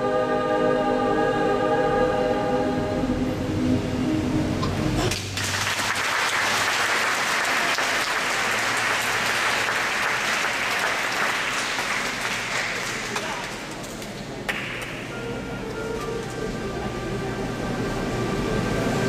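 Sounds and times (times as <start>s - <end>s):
choir singing held chord: 0.0s - 4.7s
audience applause: 5.1s - 13.8s.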